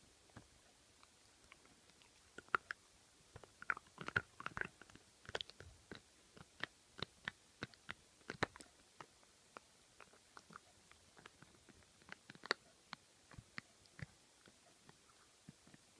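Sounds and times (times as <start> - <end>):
dog chewing on toy: 3.4 - 8.7.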